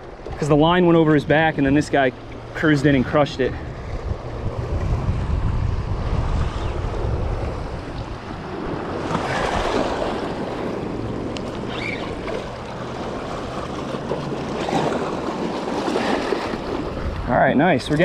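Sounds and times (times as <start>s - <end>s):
wind buffeting microphone: 0.0s - 18.0s
waves breaking over rocks: 6.9s - 18.0s.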